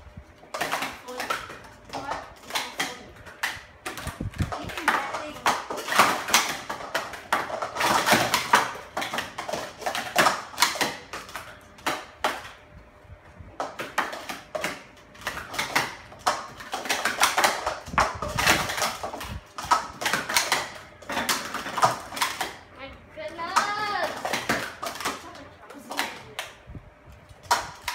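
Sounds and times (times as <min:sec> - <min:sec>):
plastic cups clattering: 0:00.4 - 0:12.6, 0:13.6 - 0:22.7, 0:23.3 - 0:26.6.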